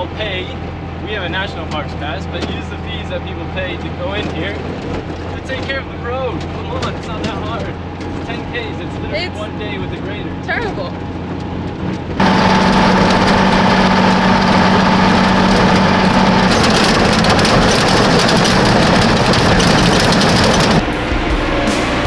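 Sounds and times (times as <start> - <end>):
road noise: 0.0 - 22.0
truck engine drone: 0.0 - 22.0
clattering rattles: 1.6 - 9.0, 11.2 - 20.8.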